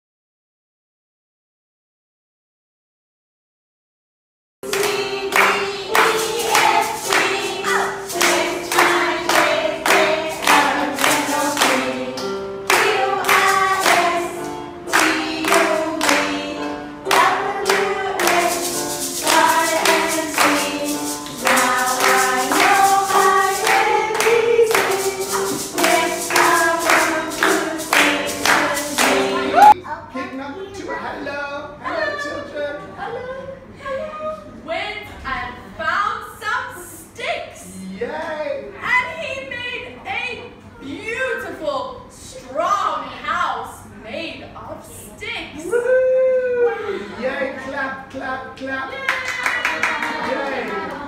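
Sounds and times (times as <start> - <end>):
clapping beat: 4.6 - 29.8, 49.1 - 51.0
keyboard accompaniment: 4.6 - 29.8
person singing: 15.0 - 29.8.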